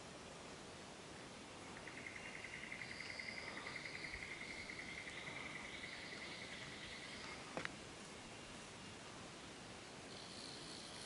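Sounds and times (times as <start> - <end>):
fainter higher insect call: 1.4 - 9.1, 9.8 - 11.0
insect trilling: 1.7 - 7.6, 10.1 - 11.0.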